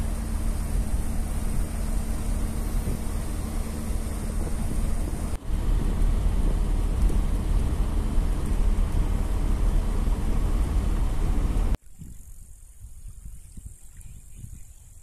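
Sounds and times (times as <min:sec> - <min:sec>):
road rumble inside vehicle: 0:00.0 - 0:11.8
wind noise: 0:00.0 - 0:15.0.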